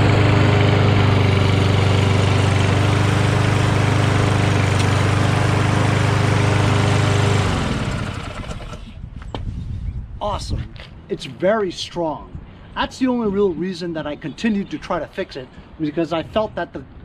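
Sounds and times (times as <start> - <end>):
lawn mower engine running: 0.0 - 9.0.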